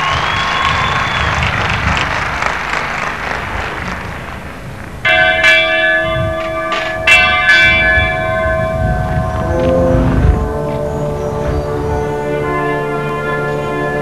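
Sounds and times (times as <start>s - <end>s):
ringing bell chord: 5.1s - 14.0s.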